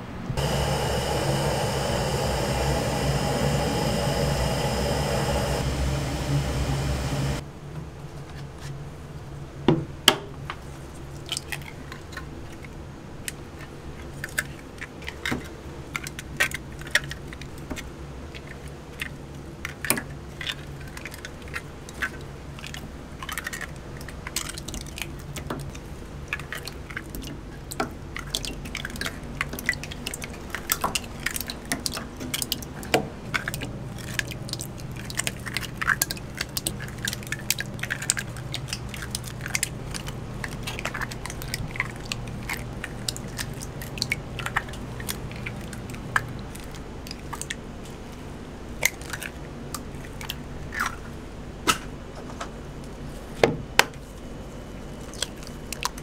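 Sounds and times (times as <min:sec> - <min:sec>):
steady rushing noise: 0:00.0 - 0:07.4
eggshells cracking: 0:28.2 - 0:47.5.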